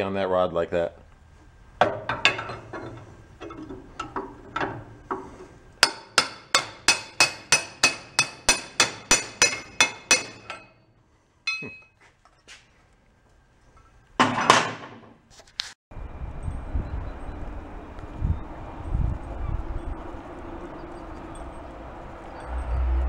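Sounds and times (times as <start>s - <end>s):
metal clank: 1.8s - 10.8s, 11.5s - 11.9s
hammer striking metal drift: 1.8s - 10.9s.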